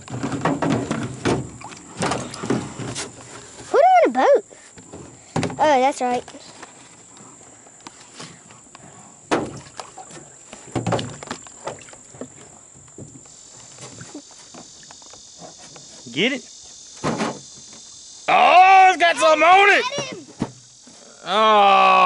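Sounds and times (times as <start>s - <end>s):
knocks and clatters in a boat: 0.0s - 3.6s, 9.3s - 13.2s
high-pitched insect drone: 0.0s - 22.0s.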